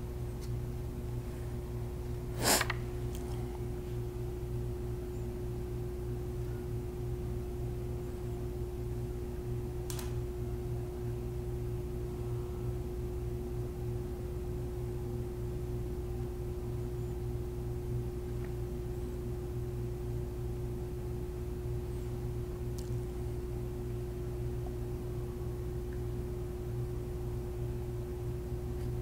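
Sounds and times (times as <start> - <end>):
electrical hum: 0.0 - 29.0
light click: 9.9 - 10.2.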